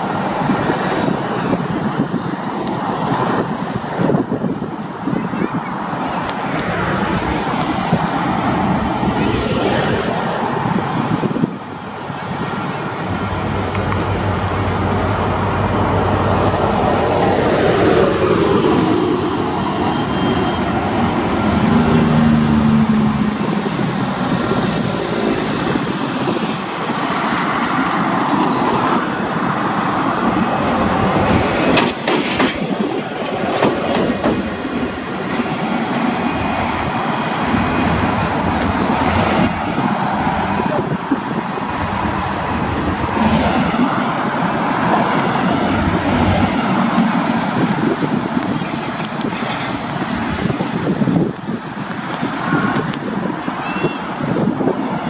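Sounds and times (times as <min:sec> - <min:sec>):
locomotive engine running: 0:11.9 - 0:25.4
wheels clicking on track: 0:23.1 - 0:54.3.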